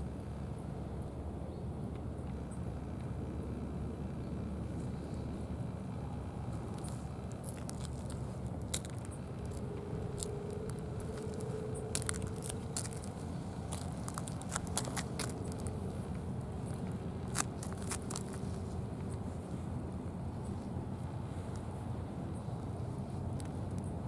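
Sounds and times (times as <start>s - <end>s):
faint steady hum: 0.0s - 24.0s
low outdoor rumble: 0.0s - 24.0s
sharp clicks and crackles: 6.7s - 15.8s, 16.7s - 18.6s.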